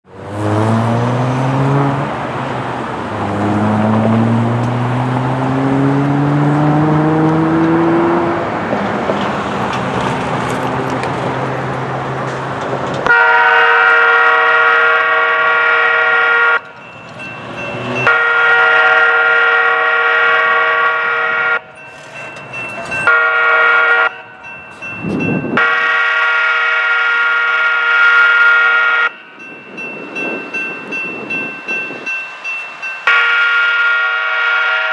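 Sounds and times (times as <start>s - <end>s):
engine revving up: 0.2s - 9.0s
locomotive air horn blasts: 13.1s - 16.7s, 18.0s - 21.8s, 23.1s - 24.3s, 25.6s - 29.2s, 33.1s - 34.9s.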